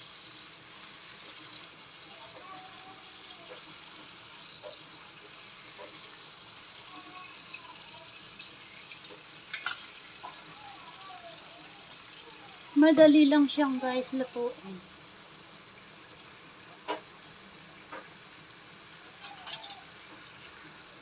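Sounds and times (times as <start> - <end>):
sauce sizzling in a frying pan: 0.0 - 21.0
tongs clattering against pan: 8.8 - 10.4, 19.1 - 20.0.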